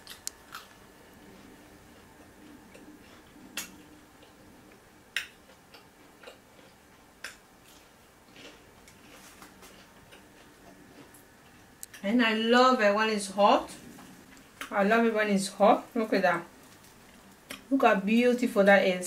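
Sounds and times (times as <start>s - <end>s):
person chewing with lip smacks: 5.1s - 12.0s.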